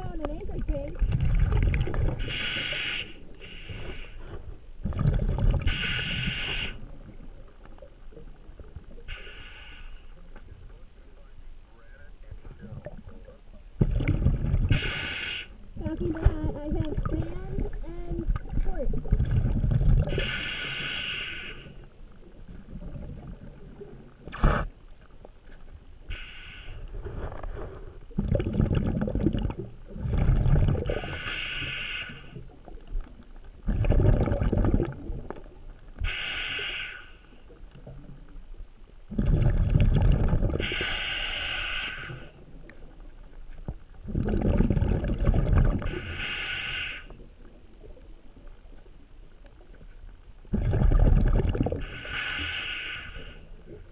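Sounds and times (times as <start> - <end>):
exhaled bubbles rumbling: 0.0 - 3.4, 4.2 - 9.1, 12.0 - 21.0, 21.6 - 26.2, 26.8 - 31.5, 32.3 - 36.2, 37.4 - 41.5, 42.1 - 46.4, 47.1 - 52.2
scuba regulator breathing hiss: 2.2 - 4.4, 5.6 - 6.9, 9.1 - 10.2, 14.7 - 15.6, 20.1 - 21.9, 26.0 - 26.9, 30.9 - 32.5, 36.0 - 37.4, 40.6 - 42.4, 45.9 - 47.2, 51.8 - 53.6.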